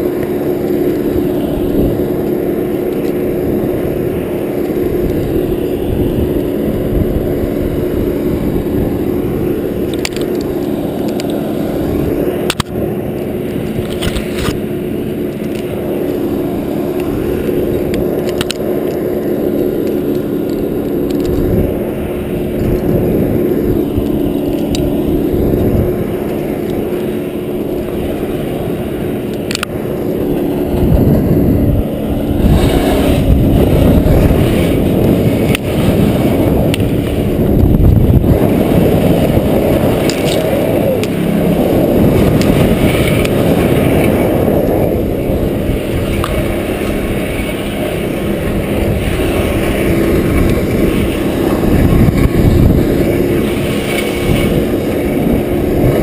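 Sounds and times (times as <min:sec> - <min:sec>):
engine running with low hum: 0:00.0 - 0:56.0
climbing gear scraping on bark: 0:38.2 - 0:44.5.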